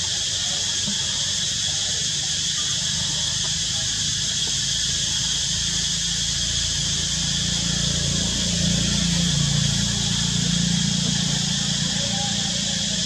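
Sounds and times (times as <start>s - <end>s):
insect chorus drone: 0.0s - 13.0s.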